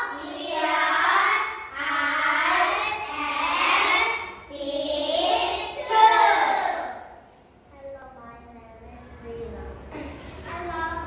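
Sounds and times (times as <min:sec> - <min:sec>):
children singing in unison: 0:00.0 - 0:07.0.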